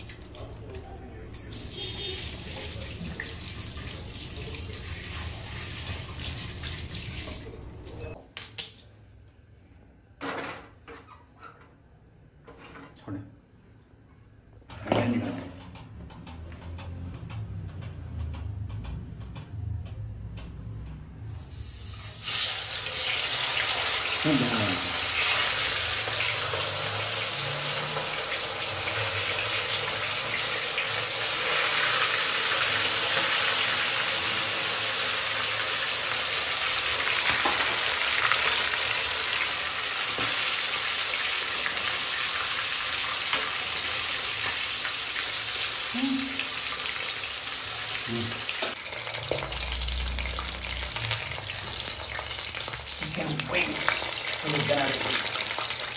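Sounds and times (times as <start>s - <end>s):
chicken deep-frying in oil: 0.0s - 8.2s, 21.3s - 55.9s.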